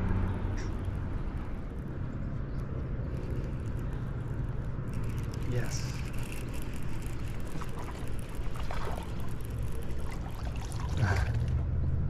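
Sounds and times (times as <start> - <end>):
steady low hum: 0.0 - 12.0
fish splashing at water surface: 6.3 - 11.6.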